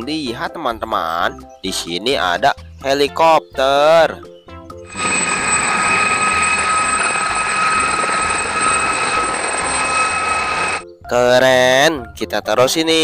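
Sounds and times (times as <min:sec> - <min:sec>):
helicopter flying low past: 0:04.9 - 0:10.8.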